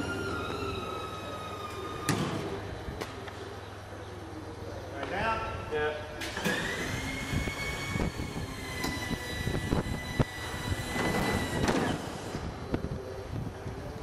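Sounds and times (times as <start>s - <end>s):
hydraulic pump whining: 0.0s - 3.1s, 6.2s - 12.9s.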